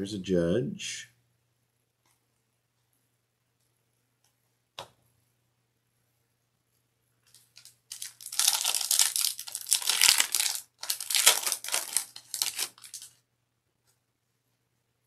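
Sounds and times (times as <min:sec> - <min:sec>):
foil wrapper tearing and crinkling: 0:07.3 - 0:13.2.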